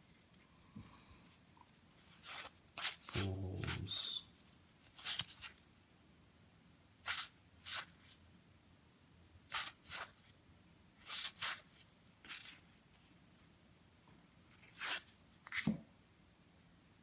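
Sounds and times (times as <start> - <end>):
trading cards swishing: 2.0 - 4.2, 4.8 - 5.6, 7.0 - 8.2, 9.5 - 10.3, 11.0 - 12.6, 14.6 - 15.7.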